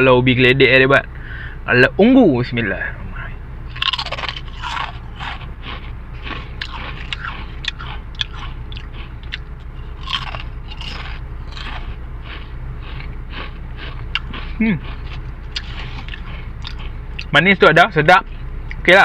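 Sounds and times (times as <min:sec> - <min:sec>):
crunching and chewing crisps: 0:03.7 - 0:17.4.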